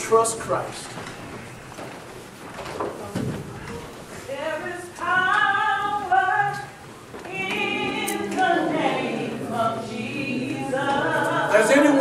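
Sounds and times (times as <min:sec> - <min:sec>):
church choir singing: 0:07.3 - 0:12.0.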